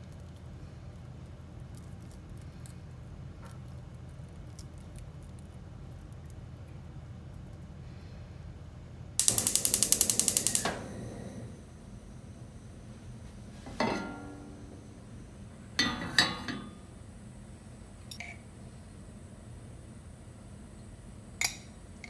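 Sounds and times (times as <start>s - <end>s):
gas igniter clicking: 9.2s - 11.4s
burner lighting: 9.2s - 22.0s
saucepan clanking on grate: 13.7s - 14.5s, 15.8s - 16.8s.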